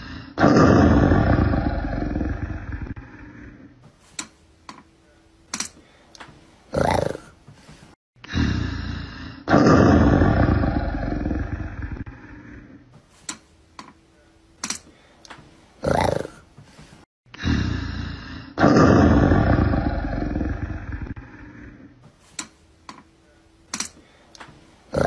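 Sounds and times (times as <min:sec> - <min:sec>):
big cat roaring: 0:00.0 - 0:03.7, 0:06.7 - 0:07.3, 0:08.3 - 0:12.8, 0:15.8 - 0:16.4, 0:17.4 - 0:21.9.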